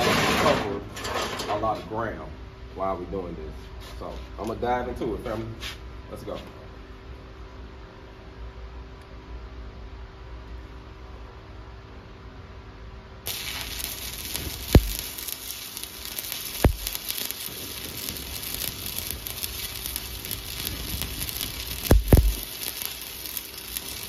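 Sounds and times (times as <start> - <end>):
welding arc crackling: 13.3 - 24.0
welding arc pops: 13.3 - 24.0.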